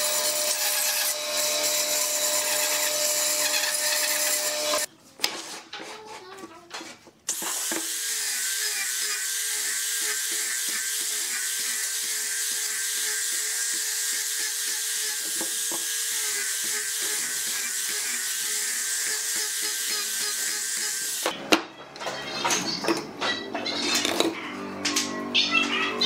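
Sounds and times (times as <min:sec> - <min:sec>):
angle grinder sanding wood: 0:00.0 - 0:04.9, 0:07.4 - 0:21.3.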